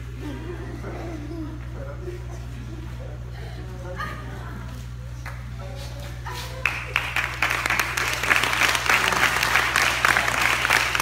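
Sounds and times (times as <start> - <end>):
steady low hum: 0.0 - 11.0
audience applauding: 6.6 - 11.0.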